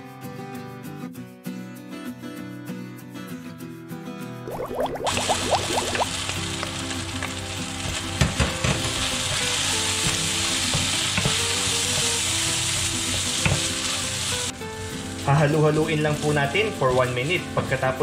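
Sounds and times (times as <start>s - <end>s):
filling sizzling in a pan: 4.5s - 18.0s.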